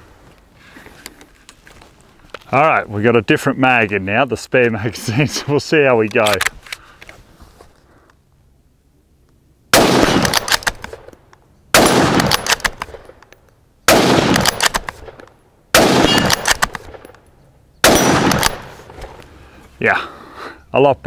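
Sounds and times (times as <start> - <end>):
rifle shots with echo: 9.7 - 11.1, 11.7 - 13.2, 13.9 - 17.1, 17.8 - 19.0.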